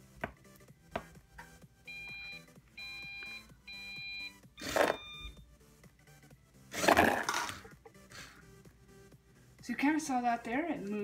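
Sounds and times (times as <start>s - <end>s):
high electronic beeps: 1.9s - 5.4s.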